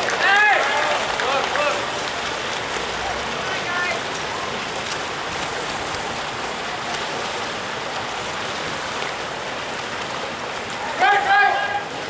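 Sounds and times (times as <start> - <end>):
pool water splashing and churning: 0.0 - 12.0.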